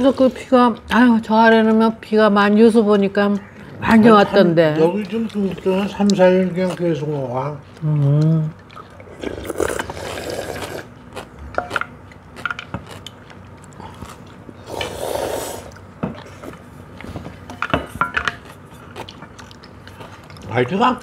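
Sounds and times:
slurping noodles: 8.8 - 10.9, 14.6 - 15.8.

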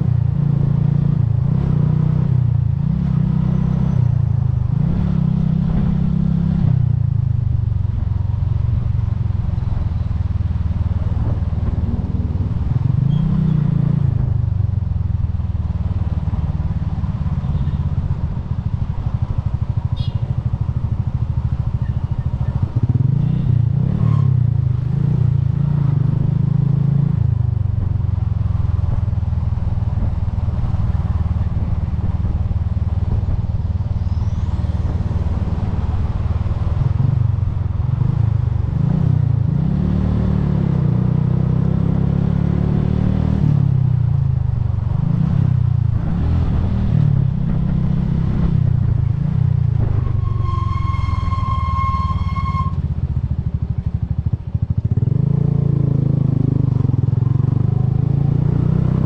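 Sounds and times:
motorcycle engine running: 0.0 - 24.8, 40.6 - 59.0.

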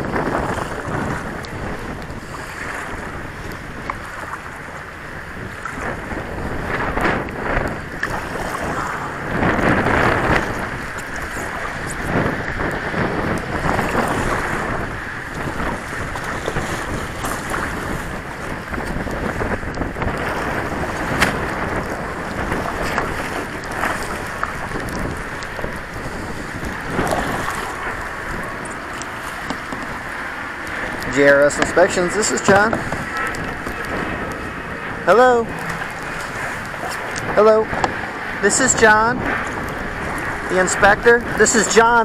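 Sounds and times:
water splashing and lapping: 0.0 - 42.0
wind buffeting microphone: 0.0 - 42.0.

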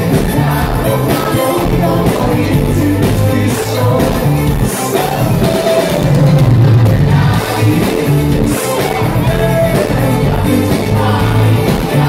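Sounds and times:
heavy bass line: 0.0 - 12.0
live pop song over loudspeakers: 0.0 - 12.0
man singing: 0.0 - 12.0.

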